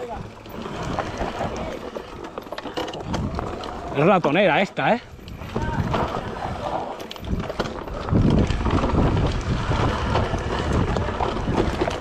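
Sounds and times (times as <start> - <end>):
bike rattling: 0.0 - 12.0
wind buffeting microphone: 2.9 - 4.3, 5.0 - 12.0.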